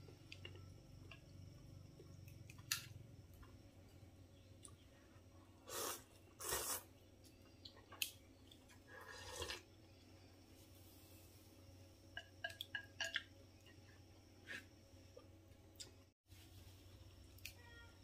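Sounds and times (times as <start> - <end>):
person slurping noodles: 5.7 - 6.9, 8.9 - 9.6.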